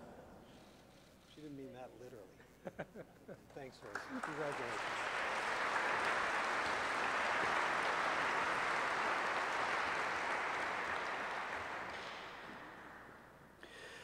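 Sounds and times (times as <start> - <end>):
audience applauding: 3.7 - 13.7.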